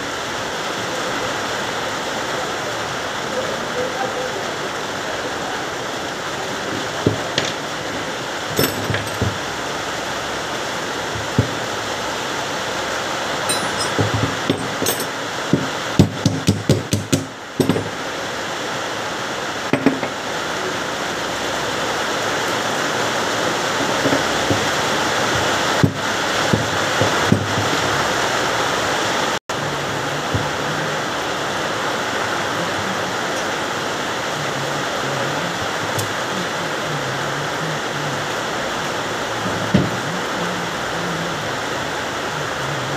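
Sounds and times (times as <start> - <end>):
steady rushing hiss: 0.0 - 42.9
metal clinks and knocks: 8.5 - 9.5, 13.5 - 15.7.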